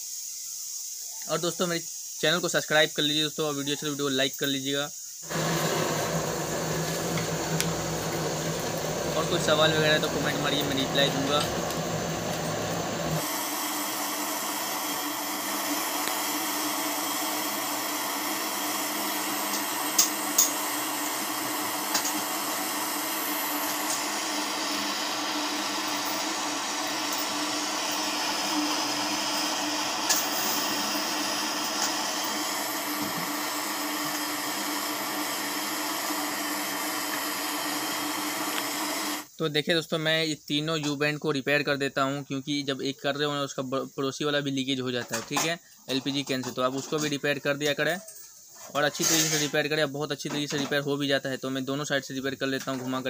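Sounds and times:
torch flame hissing: 5.0 - 39.4.

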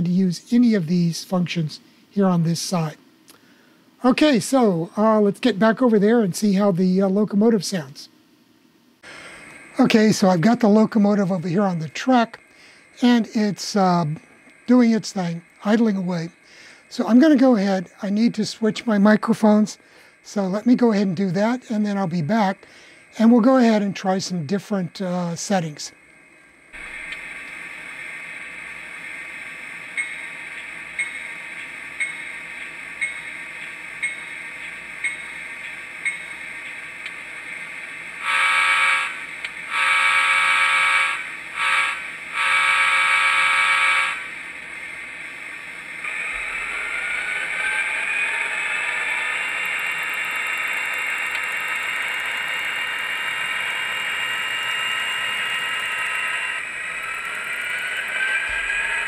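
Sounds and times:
locomotive bell dinging: 30.0 - 30.4, 31.0 - 36.4
train horn blasts: 38.2 - 44.3.

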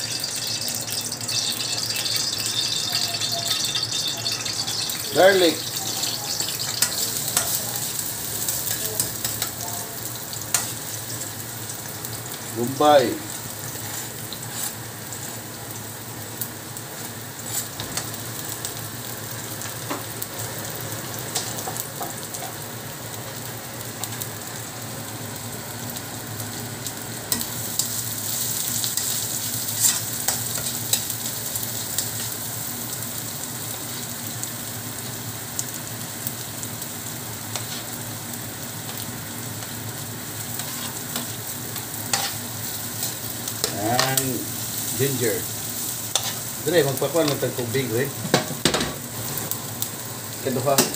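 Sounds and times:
garlic and onion sizzling in oil: 0.0 - 50.9.

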